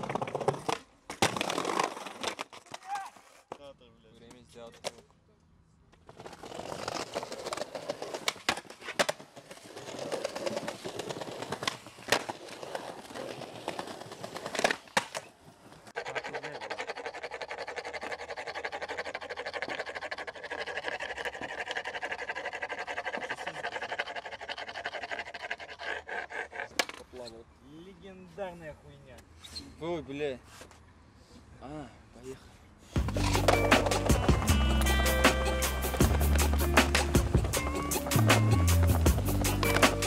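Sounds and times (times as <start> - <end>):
skateboard pops and landings: 0.0 - 3.2, 10.4 - 15.4, 36.0 - 37.6
skateboard wheels rolling on stone: 0.0 - 3.6, 5.9 - 27.1, 33.0 - 40.0
rapid scraping: 33.0 - 40.0.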